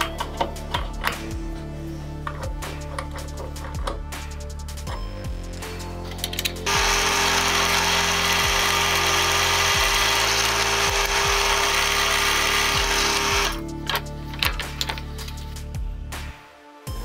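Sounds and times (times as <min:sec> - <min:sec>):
background music: 0:00.0 - 0:17.0
drill press drilling metal: 0:06.7 - 0:13.6.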